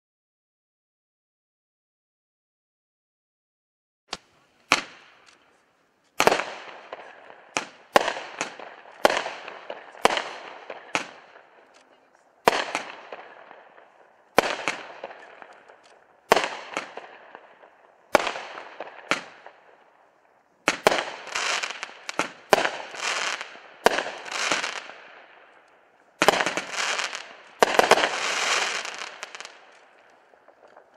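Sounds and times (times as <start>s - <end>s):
fireworks bangs with crackle: 4.1s - 30.9s.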